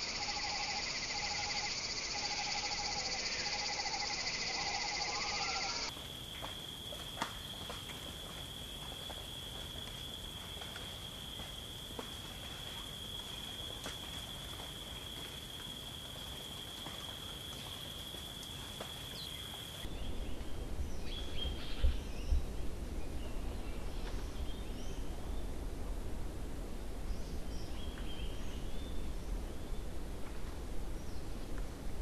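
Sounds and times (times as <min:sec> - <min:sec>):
high-pitched drone: 0:00.0 - 0:05.9.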